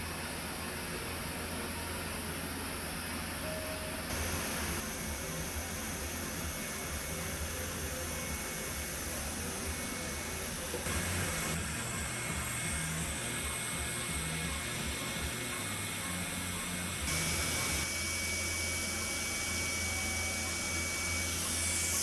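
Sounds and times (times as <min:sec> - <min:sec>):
faint steady high tone: 0:03.4 - 0:08.5
steady hiss: 0:04.1 - 0:11.6.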